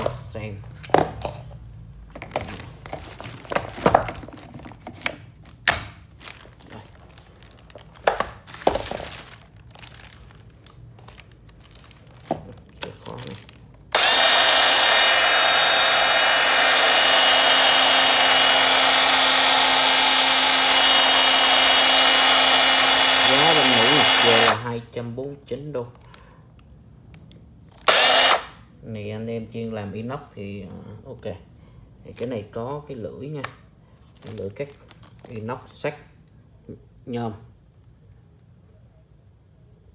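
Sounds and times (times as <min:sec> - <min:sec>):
band saw running: 0:14.0 - 0:24.6, 0:27.9 - 0:28.4.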